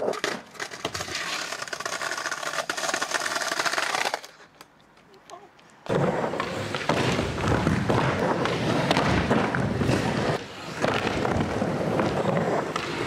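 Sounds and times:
skateboard knocking and clattering: 0:00.0 - 0:04.4
skateboarder falling: 0:00.0 - 0:04.6, 0:05.8 - 0:13.0
skateboard wheels rolling on wood: 0:00.0 - 0:04.7, 0:05.8 - 0:13.0.

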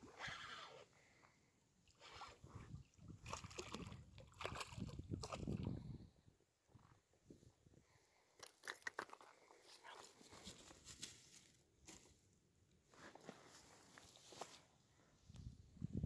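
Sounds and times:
grass rustling underfoot: 0:09.7 - 0:12.2, 0:12.9 - 0:14.7.

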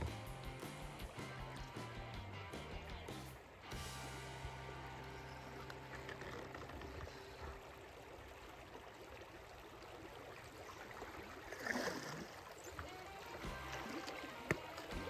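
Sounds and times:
stream water rippling over rocks: 0:02.8 - 0:15.0
water splash: 0:03.1 - 0:15.0.

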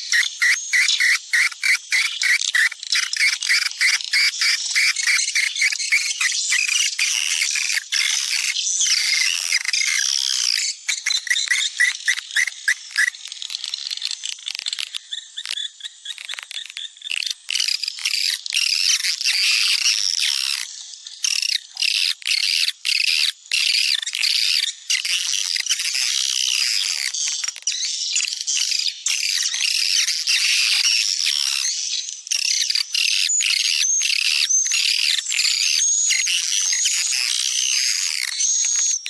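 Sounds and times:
birds twittering chirps: 0:00.0 - 0:39.0
rapid bird clicks: 0:00.1 - 0:27.8.

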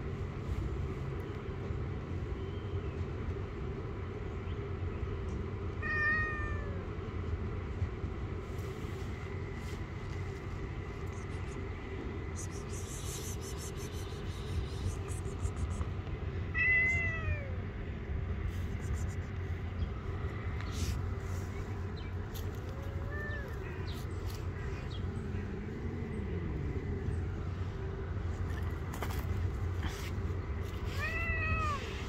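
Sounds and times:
low background noise: 0:00.0 - 0:32.0
cat meowing: 0:05.8 - 0:06.8, 0:16.5 - 0:17.6, 0:22.6 - 0:24.0, 0:30.9 - 0:32.0.

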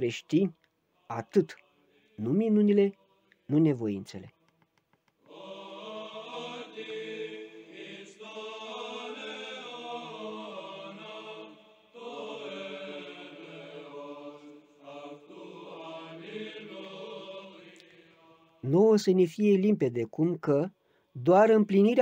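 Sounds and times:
choral chanting: 0:00.0 - 0:03.8, 0:05.3 - 0:18.9.

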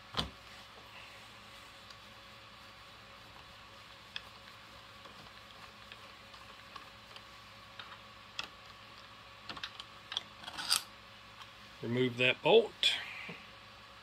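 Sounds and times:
hand tool and metal parts clicking: 0:09.5 - 0:10.9.

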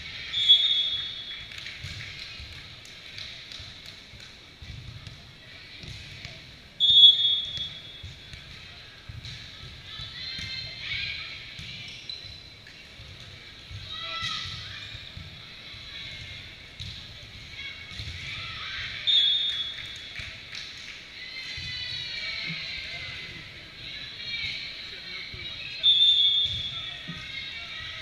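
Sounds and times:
referee whistle blast: 0:06.8 - 0:07.8.

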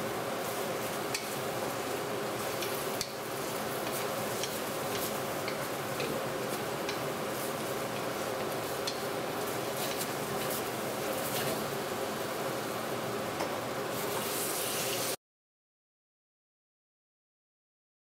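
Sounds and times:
food sizzling in a wok: 0:00.0 - 0:13.0, 0:13.8 - 0:15.2
spatula scraping a wok: 0:14.0 - 0:15.2.

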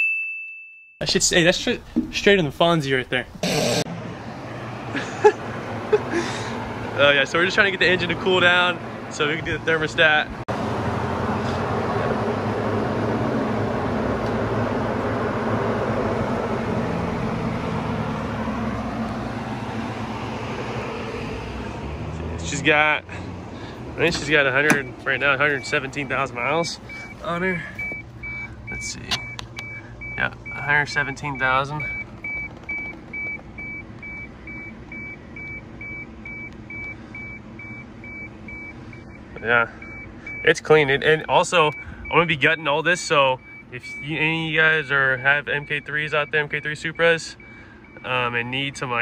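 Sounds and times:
car engine idling: 0:05.0 - 0:49.0.

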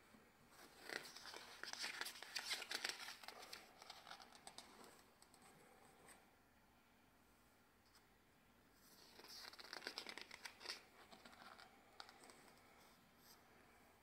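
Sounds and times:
page turning rustle: 0:00.6 - 0:05.1, 0:08.9 - 0:12.4.

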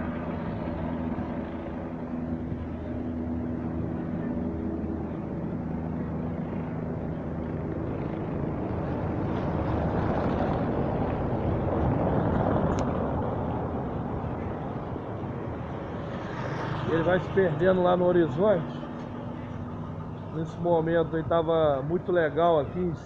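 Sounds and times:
broad rushing noise: 0:00.0 - 0:23.0
helicopter rotors droning: 0:00.0 - 0:23.0.

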